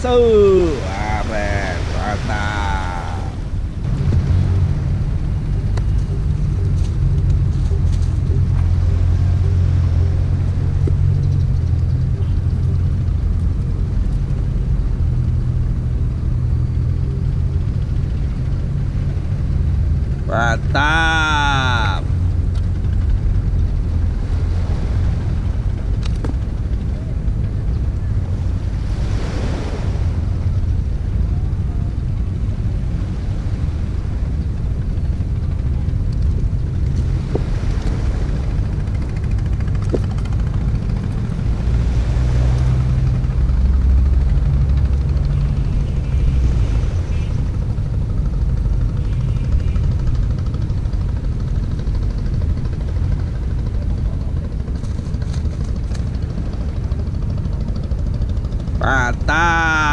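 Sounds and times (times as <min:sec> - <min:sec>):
low engine drone: 0:00.0 - 0:59.9
wind buffeting microphone: 0:21.3 - 0:59.9.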